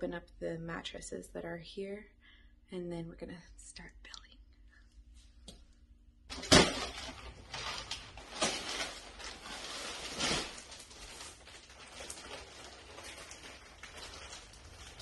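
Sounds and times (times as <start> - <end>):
plastic wrapping crinkling: 6.3 - 15.0.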